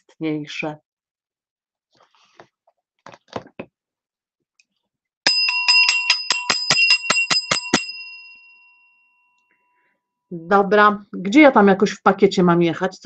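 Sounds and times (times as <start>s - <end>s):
small metal bell ringing: 5.2s - 9.9s.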